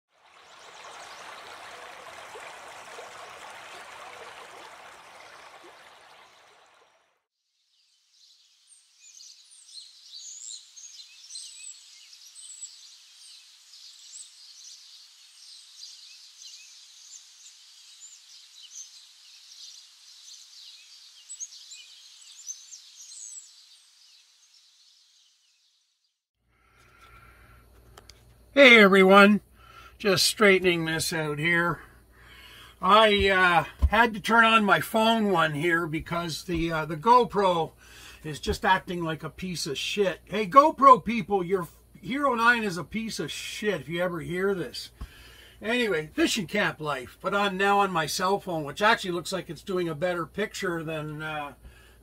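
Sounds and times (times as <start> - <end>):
running water hiss: 0.1 - 7.0, 28.6 - 49.3
birds chirping and singing: 8.2 - 25.5.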